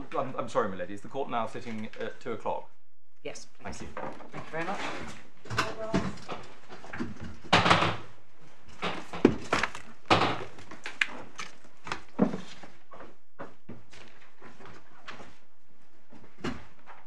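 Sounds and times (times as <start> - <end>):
thuds and knocks: 5.5 - 8.2, 8.8 - 10.8.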